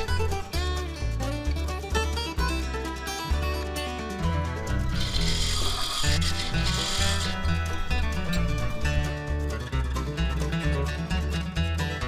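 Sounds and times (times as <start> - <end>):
guitar-led tune: 0.0 - 12.0
rhythmic bass line: 4.2 - 11.4.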